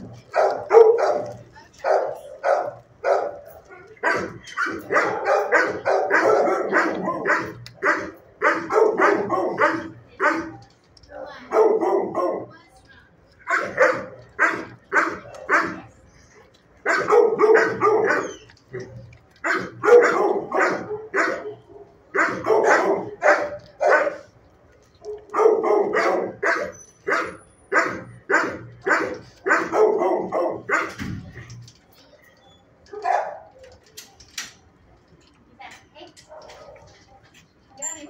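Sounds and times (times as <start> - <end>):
dog barking: 0.3 - 12.5, 13.4 - 15.9, 16.8 - 24.3, 25.0 - 31.1, 32.9 - 33.6, 36.3 - 37.0.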